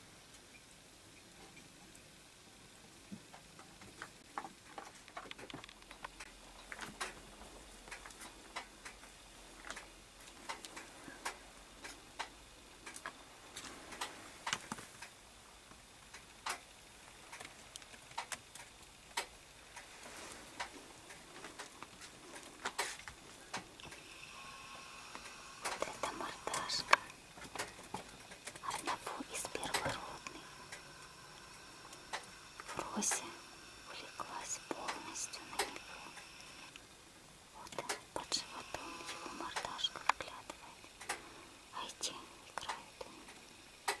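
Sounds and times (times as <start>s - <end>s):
faint hiss: 0.0s - 44.0s.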